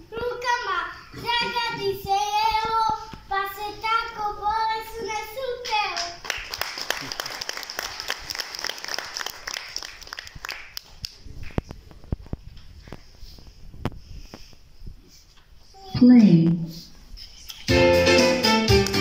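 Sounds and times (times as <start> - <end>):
audience clapping: 5.6 - 11.6, 18.2 - 19.0.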